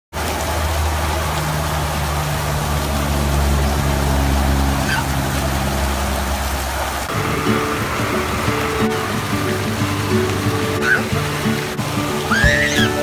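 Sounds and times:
water rushing: 0.1s - 13.0s
low even hum: 2.9s - 12.2s.

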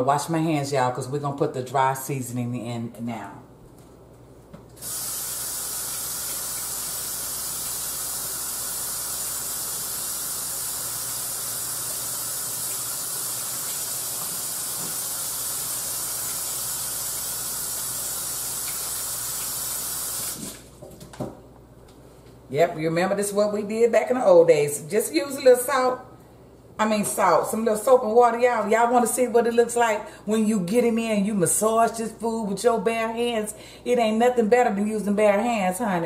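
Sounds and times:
water running from faucet: 4.8s - 20.7s.

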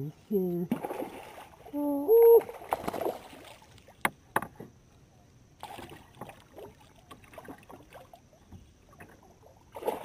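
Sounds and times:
fish thrashing and splashing: 2.4s - 3.8s.

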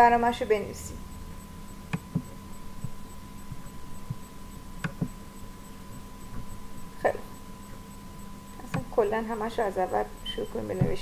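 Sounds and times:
electrical hum: 0.0s - 11.0s
computer mouse clicks: 1.9s - 5.2s, 8.5s - 9.0s.

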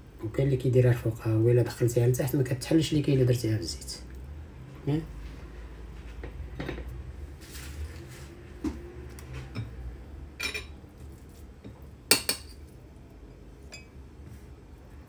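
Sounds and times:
dishes clinking on counter: 6.2s - 6.9s, 10.4s - 10.8s, 11.6s - 12.6s, 13.7s - 14.0s.

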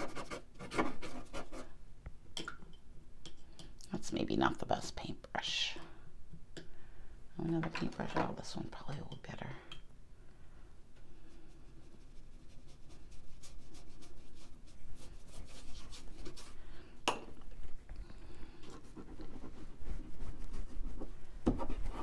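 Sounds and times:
paintbrush brushing on paper: 11.2s - 16.6s, 18.6s - 22.0s.

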